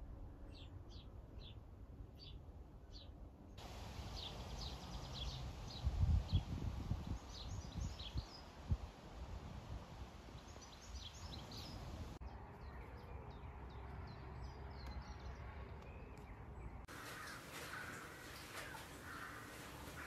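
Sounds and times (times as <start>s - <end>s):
small birds chirping: 2.2s - 8.7s, 10.3s - 20.0s
harsh bird calls: 16.9s - 20.0s.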